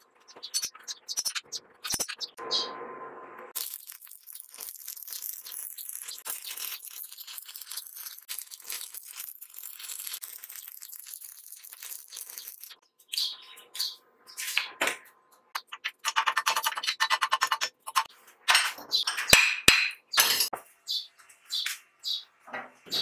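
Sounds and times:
welding arc crackling and sizzling: 0:03.5 - 0:12.8
sharp metal knocks: 0:18.5 - 0:20.5.

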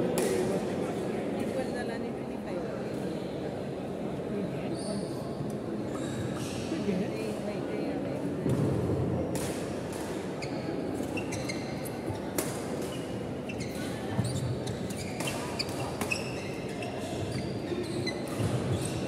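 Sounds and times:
crowd murmur echoing: 0:00.0 - 0:16.0
shoes squeaking on wooden floor: 0:13.5 - 0:19.0.

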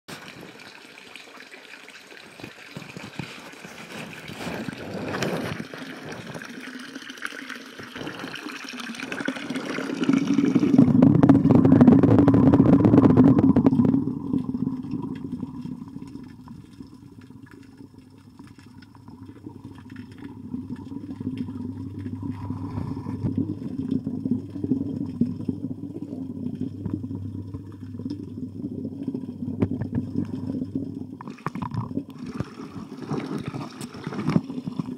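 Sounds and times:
water pouring into a pond: 0:00.1 - 0:34.9
faint steady hum: 0:03.9 - 0:34.9
muffled underwater rumble: 0:09.0 - 0:34.9.

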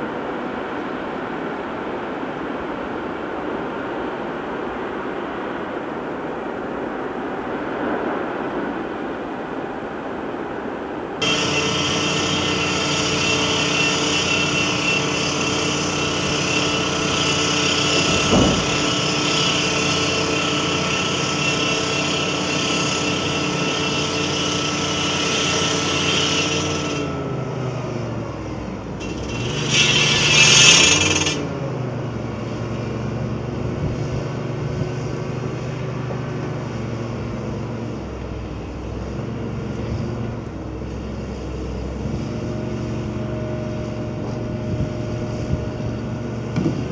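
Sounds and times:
heavy diesel engine running: 0:11.2 - 0:46.9.

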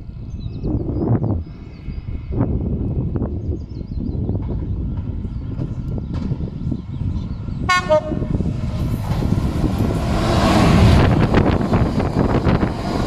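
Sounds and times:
diesel locomotive engine: 0:00.0 - 0:13.0
train wheels rolling: 0:04.3 - 0:13.0
locomotive horn toot: 0:07.7 - 0:08.4.

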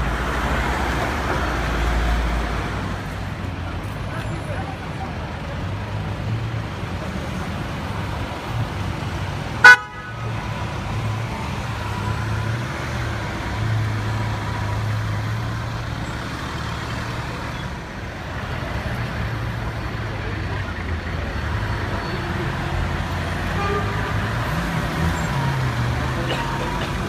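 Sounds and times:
traffic engines running: 0:00.0 - 0:27.0
car horn toot: 0:09.6 - 0:10.2, 0:23.5 - 0:24.2.

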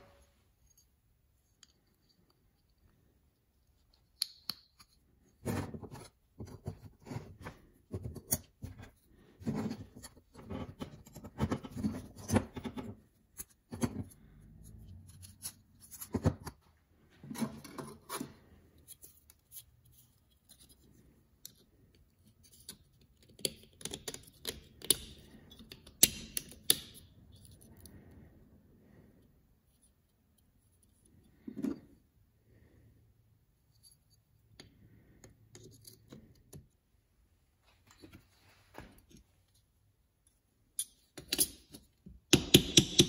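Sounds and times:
knife parts clicking and scraping: 0:40.7 - 0:41.9.

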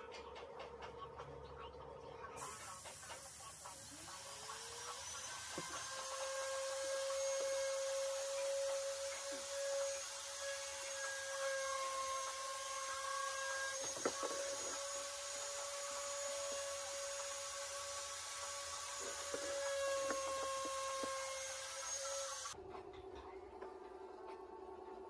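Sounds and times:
small electric motor running: 0:02.4 - 0:22.6.

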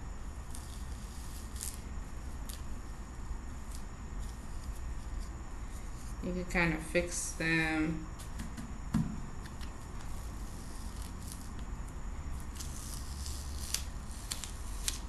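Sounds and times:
soft knock: 0:08.4 - 0:09.2.

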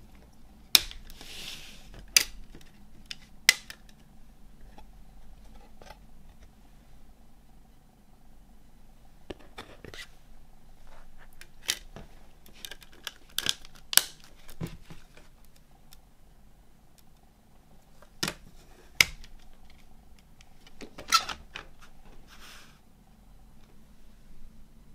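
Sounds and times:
soft rustle: 0:01.1 - 0:03.0, 0:21.8 - 0:22.8
plastic cd case clicks and snaps: 0:02.1 - 0:04.1, 0:12.5 - 0:14.8.

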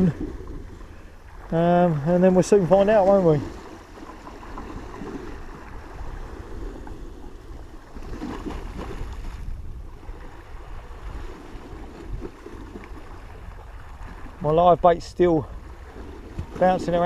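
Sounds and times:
wind rumbling on microphone: 0:00.0 - 0:17.0
sea waves against a wall: 0:15.4 - 0:17.0.

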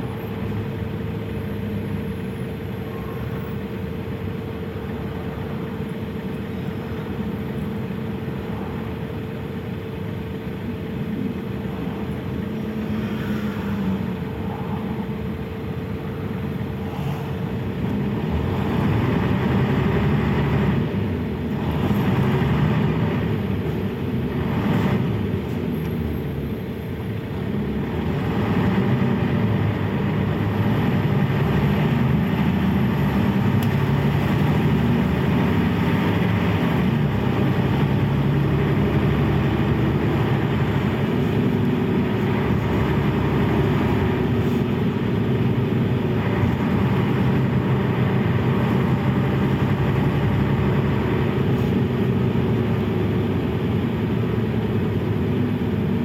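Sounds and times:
bus diesel engine running: 0:00.0 - 0:56.0.

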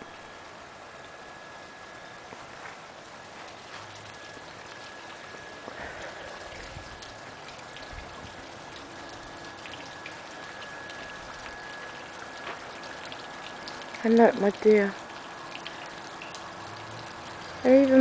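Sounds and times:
steady rain: 0:00.0 - 0:18.0.

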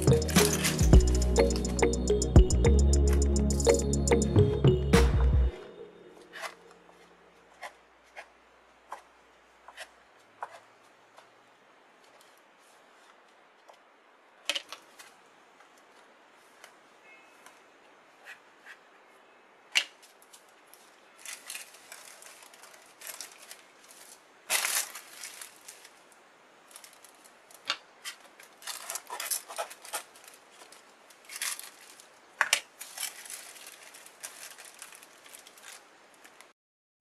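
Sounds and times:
parchment paper rustling and crinkling: 0:06.2 - 0:11.4, 0:12.0 - 0:13.8, 0:14.4 - 0:17.6, 0:19.8 - 0:36.6.

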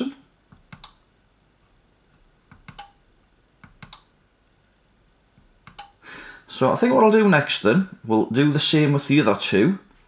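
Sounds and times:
sharp switch clicks: 0:00.7 - 0:01.0, 0:02.5 - 0:03.0, 0:03.6 - 0:04.1, 0:05.6 - 0:06.0.

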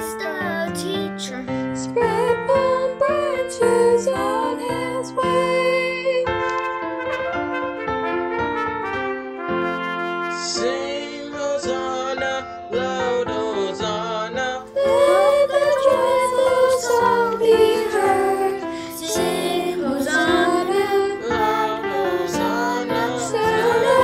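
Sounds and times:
young voices singing: 0:01.8 - 0:06.2, 0:14.7 - 0:24.0
trumpet playing a melody: 0:06.5 - 0:11.4.

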